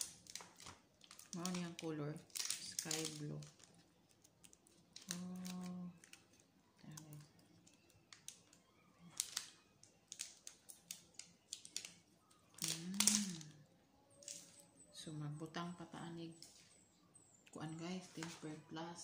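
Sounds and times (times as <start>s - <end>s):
plastic film peeling off: 0.0s - 14.6s.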